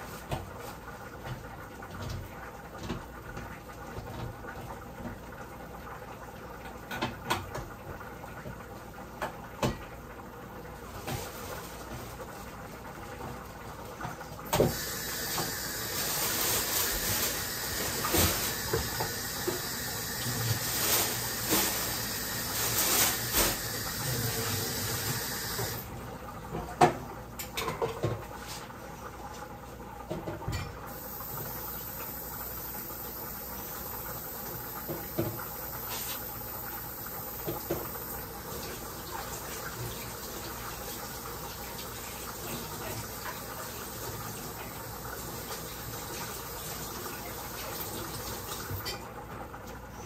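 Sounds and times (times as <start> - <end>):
tap running water into sink: 6.6 - 10.0, 13.1 - 25.9, 30.0 - 49.5.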